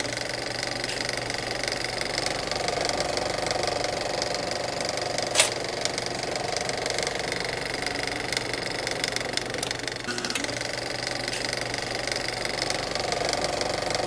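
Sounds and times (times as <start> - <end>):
sharp click: 5.3 - 5.6.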